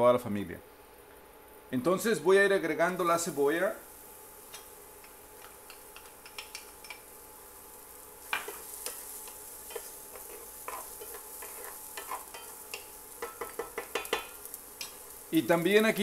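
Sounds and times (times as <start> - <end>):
onion sizzling in oil: 0.7 - 16.0
utensil scraping a pan: 8.2 - 15.2.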